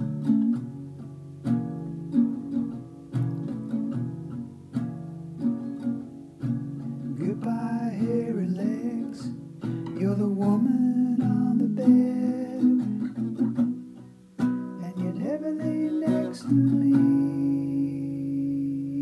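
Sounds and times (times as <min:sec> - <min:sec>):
acoustic guitar: 0:00.0 - 0:19.0
man singing: 0:07.0 - 0:13.6, 0:14.7 - 0:19.0.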